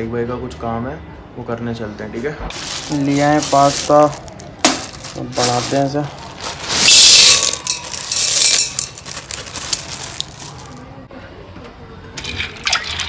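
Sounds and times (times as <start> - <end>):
dry pasta rattling into metal pot: 2.6 - 10.7.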